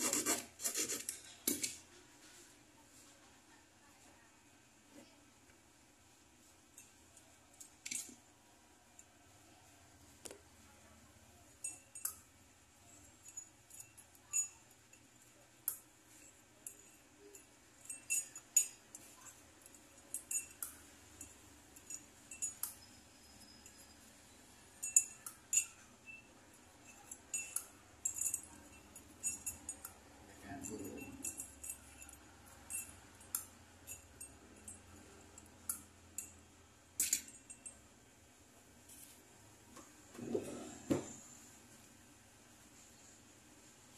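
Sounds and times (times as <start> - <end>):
metal clinking against glass rim: 11.5 - 37.8.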